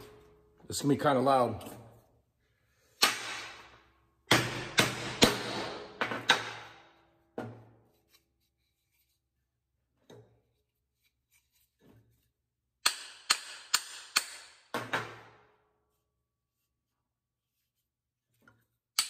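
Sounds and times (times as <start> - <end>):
hammer striking handle: 4.3 - 6.8, 12.8 - 15.2.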